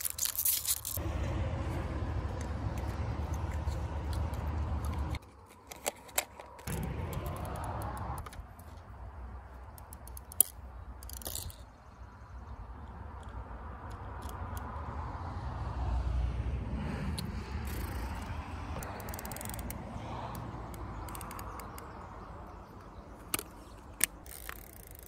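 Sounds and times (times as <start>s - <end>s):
low rumble: 1.0s - 5.2s
camera clicks and metal clatter: 2.4s - 8.8s, 9.7s - 11.8s, 17.6s - 19.8s, 20.7s - 22.0s, 23.2s - 25.0s.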